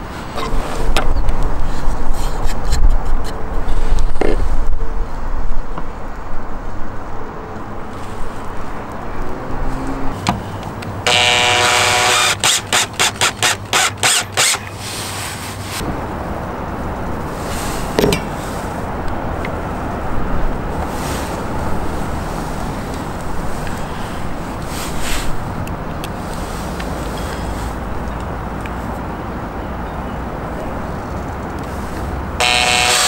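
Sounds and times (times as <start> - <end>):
drill short pulses: 11.0 - 15.0, 32.4 - 33.0
cordless drill motor whine: 11.1 - 14.8, 32.4 - 33.0.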